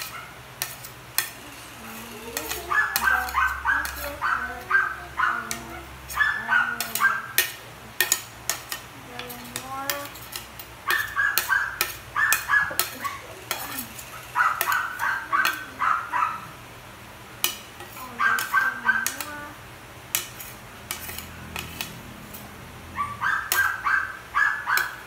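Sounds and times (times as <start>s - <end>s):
spoon scraping plastic plate: 0.0s - 16.1s, 17.4s - 19.4s, 20.1s - 22.6s, 23.4s - 23.8s
spoon clicking against plate: 2.4s - 4.1s, 23.5s - 23.7s.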